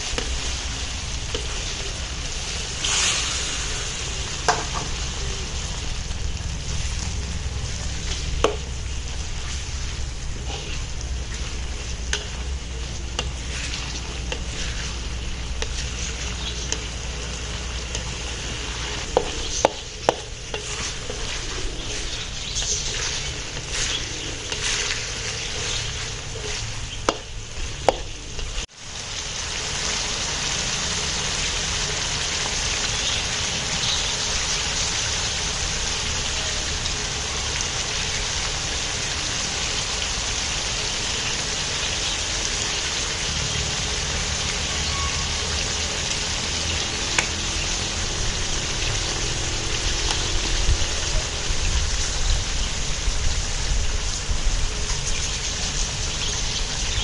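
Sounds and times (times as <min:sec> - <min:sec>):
food sizzling in a wok: 0:00.0 - 0:57.0
low rumble: 0:00.5 - 0:28.7.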